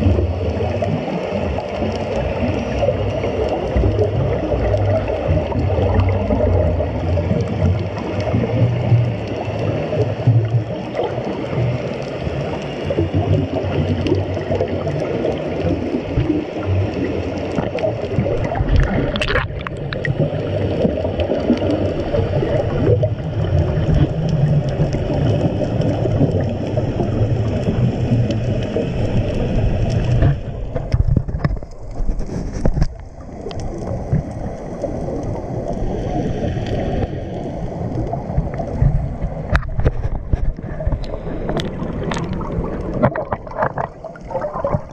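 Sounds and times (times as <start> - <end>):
underwater rumble and gurgling: 0.0 - 44.9.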